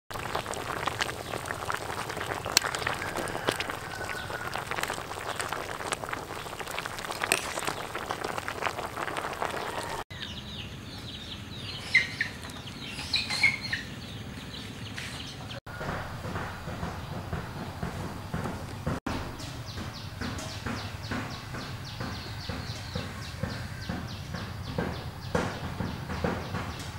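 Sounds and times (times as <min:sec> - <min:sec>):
ladle stirring: 0:00.1 - 0:10.0
stew bubbling in a pot: 0:00.1 - 0:10.1
birds chirping: 0:00.3 - 0:26.9.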